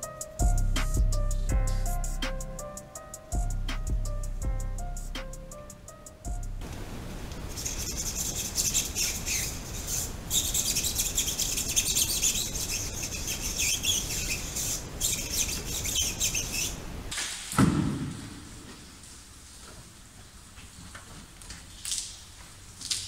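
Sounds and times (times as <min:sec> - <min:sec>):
sponge scrubbing a tyre: 0:07.6 - 0:16.8.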